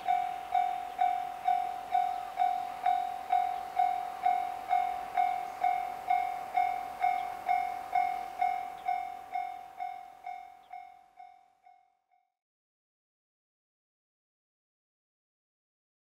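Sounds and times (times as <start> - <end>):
level crossing warning bell ringing: 0.0 - 11.9.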